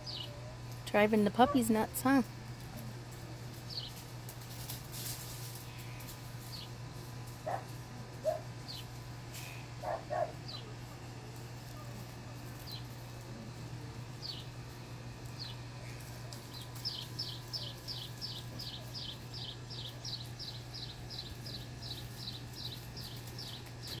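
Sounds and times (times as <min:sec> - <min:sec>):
bird chirping: 0:00.0 - 0:00.4, 0:16.5 - 0:24.0
low steady hum: 0:00.0 - 0:24.0
dogs barking: 0:01.4 - 0:01.8, 0:07.4 - 0:08.8, 0:09.7 - 0:13.6, 0:15.6 - 0:20.5.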